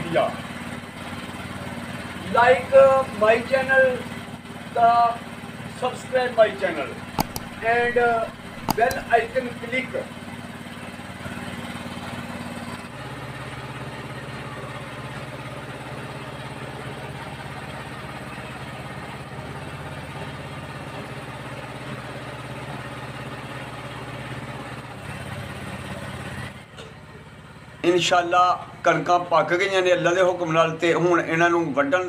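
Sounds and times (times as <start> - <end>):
motorcycle engine running: 7.2 - 9.5.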